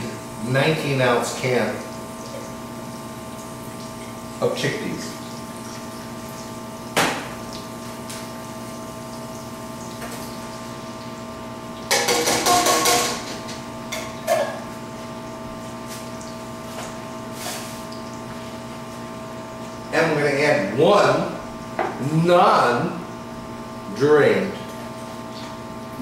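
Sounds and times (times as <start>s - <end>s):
steady hum: 0.0s - 26.0s
pans and utensils clinking: 11.9s - 14.7s.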